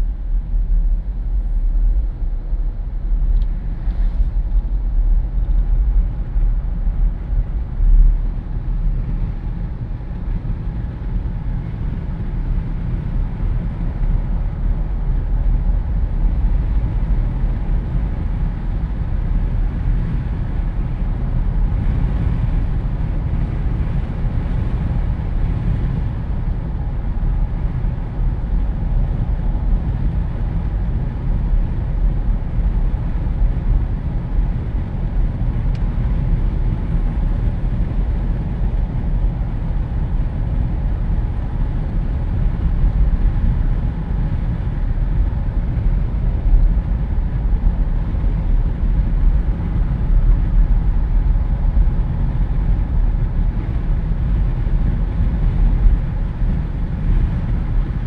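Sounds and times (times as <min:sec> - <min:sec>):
wind rushing through car windows: 0:00.0 - 0:58.0.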